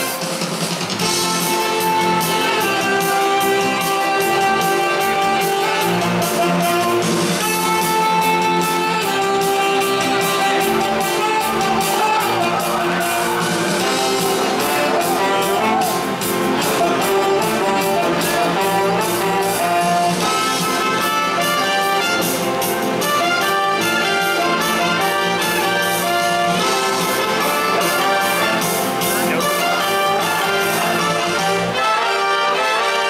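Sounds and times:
brass band playing upbeat tune: 0.0 - 33.0.

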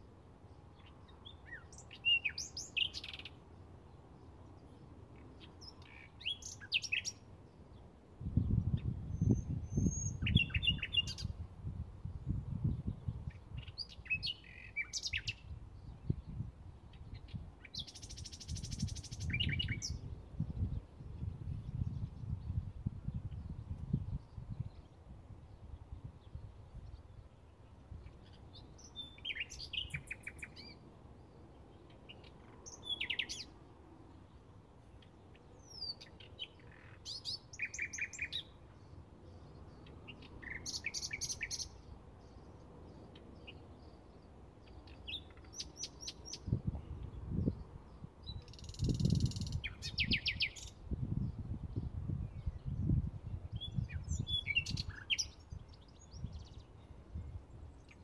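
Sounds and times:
bird singing: 0.7 - 3.4, 4.2 - 7.3, 8.7 - 11.4, 13.3 - 16.1, 16.9 - 20.1, 26.2 - 33.5, 34.3 - 46.6, 47.4 - 50.8, 53.5 - 58.0.

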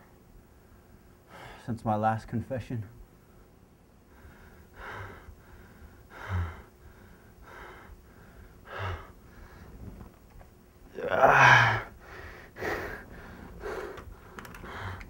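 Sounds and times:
man gasping for breath: 4.1 - 9.5, 11.2 - 15.0
man moaning: 10.9 - 12.0.

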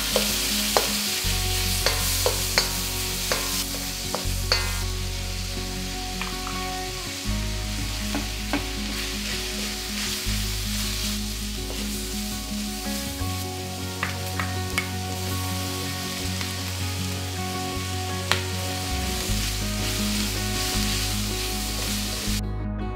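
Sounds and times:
spatula scraping and knocking wok: 0.0 - 5.0, 8.1 - 12.1
food sizzling in a wok: 0.0 - 22.4.

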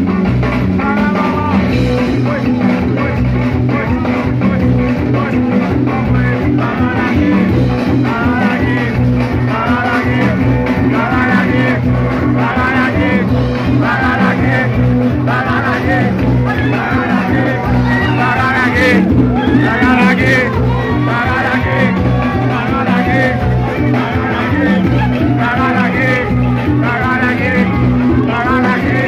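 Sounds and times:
band bass line and beat: 0.0 - 29.0
voices singing: 0.8 - 29.0.

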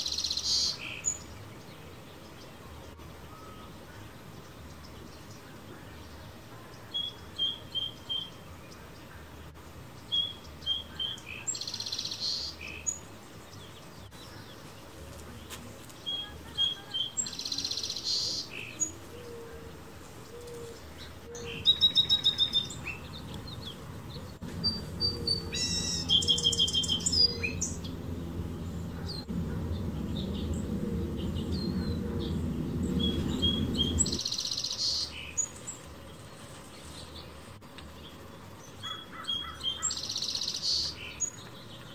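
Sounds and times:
song sparrow singing: 0.0 - 41.9
other birds chirping: 10.0 - 41.9
low rumble: 26.9 - 34.3.

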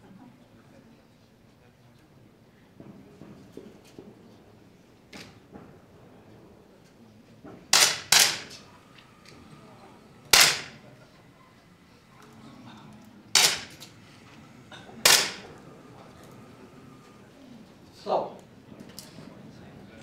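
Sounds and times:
air pistol shots: 7.7 - 8.6, 10.3 - 10.9, 13.3 - 14.0, 15.0 - 15.6.

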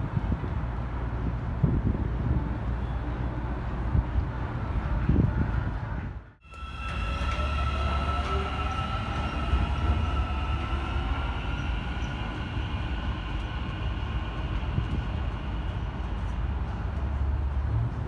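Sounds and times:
train low rumble: 0.0 - 18.0.

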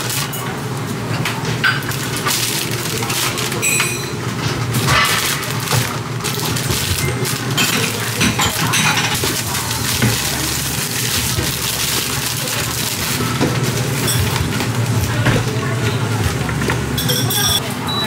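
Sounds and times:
paper bags rustling: 1.8 - 3.6, 4.6 - 16.4.

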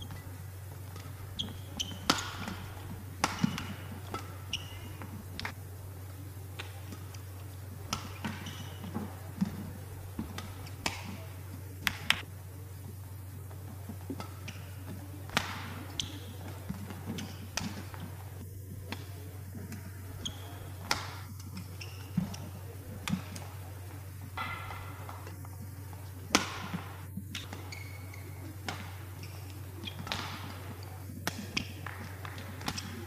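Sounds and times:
shoes squeaking on court: 0.0 - 5.6, 6.6 - 12.0, 13.5 - 33.0
steady low hum: 0.0 - 33.0
rackets striking shuttlecock: 0.8 - 5.6, 24.4 - 25.4, 26.3 - 33.0.

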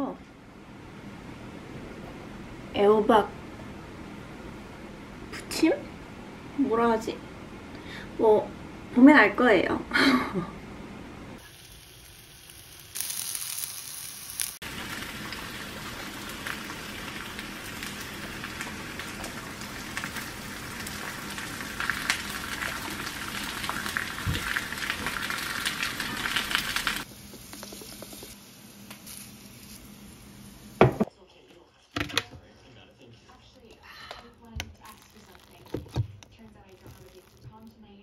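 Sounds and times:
zucchini sizzling in oil: 11.4 - 30.9.

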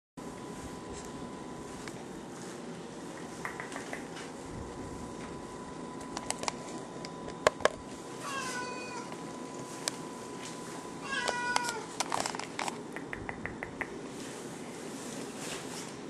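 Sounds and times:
cat meowing: 8.2 - 9.1, 11.0 - 11.9.

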